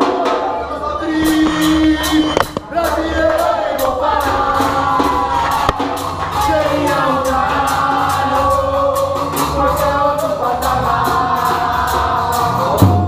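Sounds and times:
crowd singing a chant: 0.0s - 13.0s
stick-played drum beat: 0.0s - 13.0s.

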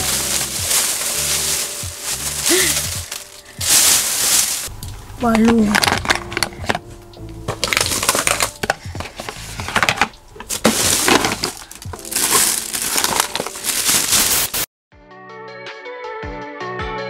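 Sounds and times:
plastic bag crinkling: 0.0s - 4.7s, 5.4s - 6.8s, 7.5s - 14.7s
background music with a beat: 0.0s - 13.8s, 14.9s - 17.0s
bottles and jars clattering: 5.5s - 6.8s, 7.5s - 14.2s.

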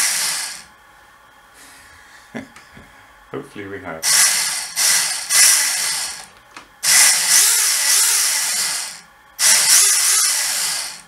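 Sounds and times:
small electric motors whirring: 0.0s - 0.7s, 4.0s - 11.0s.

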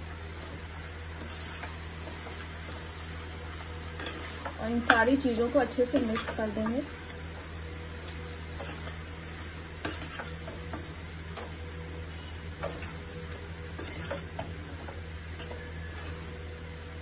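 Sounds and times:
faint sizzle: 0.0s - 17.0s
steady low hum: 0.0s - 17.0s
metal spatula scraping a pan: 1.1s - 1.8s, 3.9s - 6.6s, 8.5s - 10.7s, 12.2s - 16.5s.

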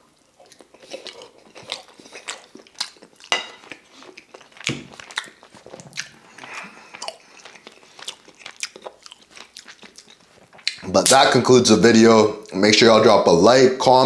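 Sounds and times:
chewing with wet mouth clicks: 0.2s - 10.8s.

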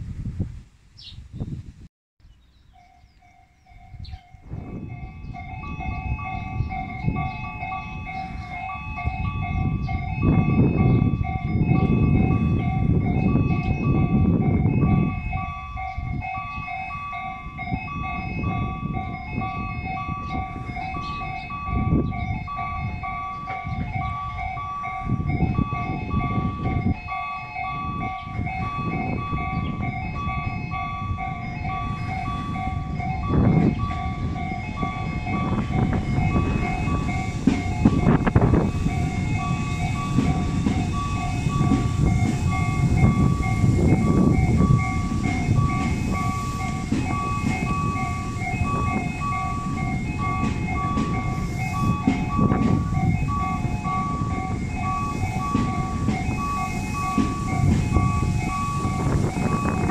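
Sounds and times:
wind buffeting microphone: 0.0s - 59.9s
level-crossing bell clanging: 2.8s - 59.9s
electric train running: 3.7s - 59.9s.

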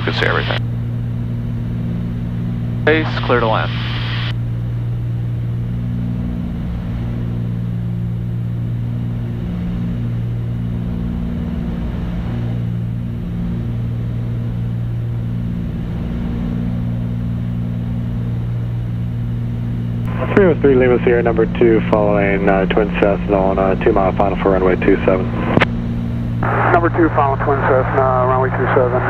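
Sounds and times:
aircraft cabin engine drone: 0.0s - 29.0s.

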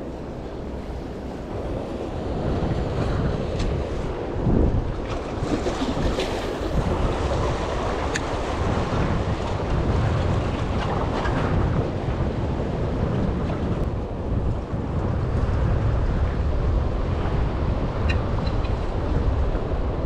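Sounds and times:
wind rumbling on microphone: 0.0s - 20.0s
sea water washing against rocks: 2.2s - 18.0s.

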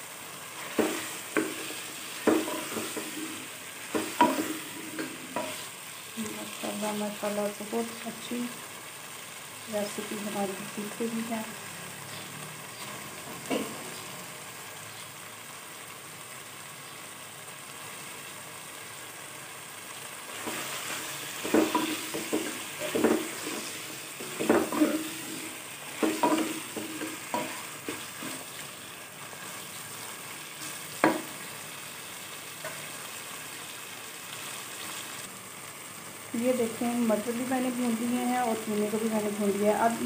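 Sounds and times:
meat frying with sizzle: 0.0s - 40.0s
spatula scraping a pan: 0.6s - 5.8s, 20.3s - 31.4s.

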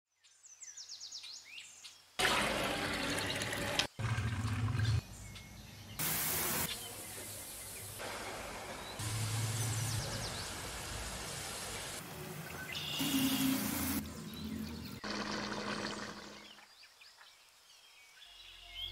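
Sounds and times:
birds chirping: 4.2s - 18.9s.

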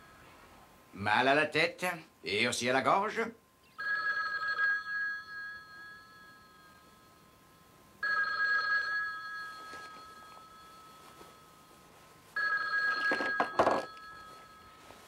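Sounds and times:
telephone bell ringing: 3.8s - 15.0s.

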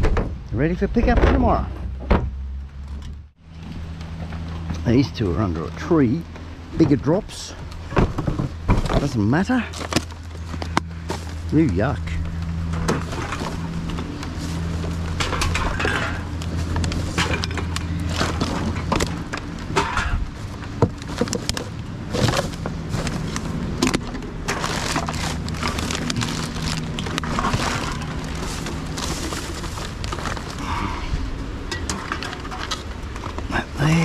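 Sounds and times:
plastic bags crinkling: 12.4s - 31.0s
cans and packaging clattering: 12.6s - 30.8s.

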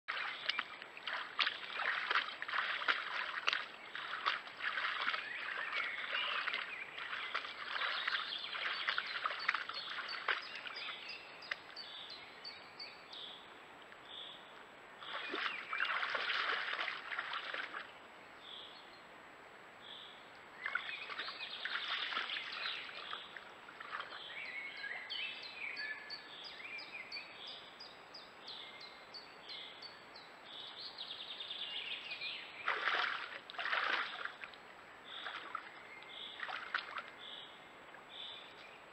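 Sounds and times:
moose splashing through water: 0.1s - 11.7s, 15.0s - 17.9s, 20.6s - 24.3s, 32.6s - 37.3s.

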